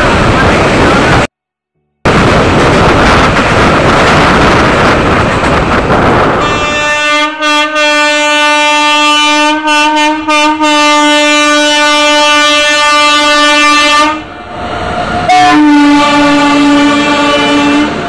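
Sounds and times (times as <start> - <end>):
train rumbling across bridge: 0.0 - 1.3, 2.1 - 18.0
multi-tone locomotive horn: 6.4 - 14.3, 15.3 - 18.0.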